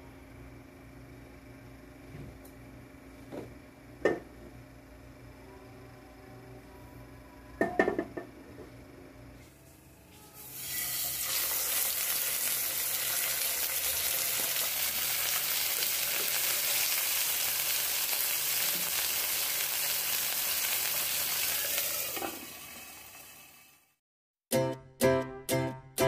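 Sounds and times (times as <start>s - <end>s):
meat sizzling in hot oil: 10.4s - 23.8s.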